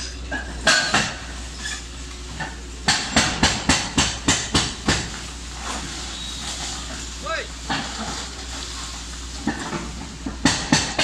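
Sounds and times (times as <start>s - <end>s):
excavator engine hum: 0.0s - 11.0s.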